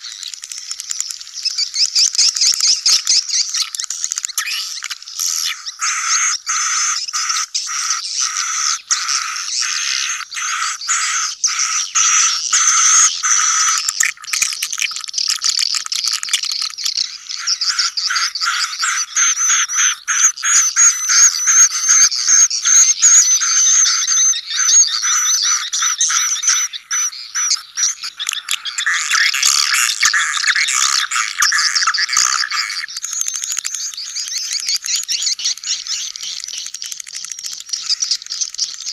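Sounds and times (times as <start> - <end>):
swiftlets twittering: 25.7 - 38.9.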